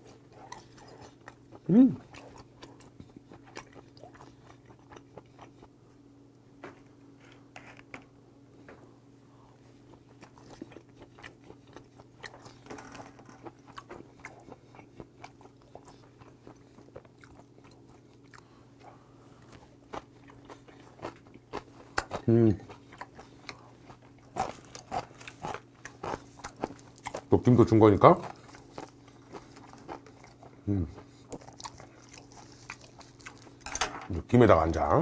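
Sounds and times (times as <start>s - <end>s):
person chewing wetly: 0.0s - 5.8s, 9.6s - 33.7s
faint steady hum: 0.0s - 35.0s.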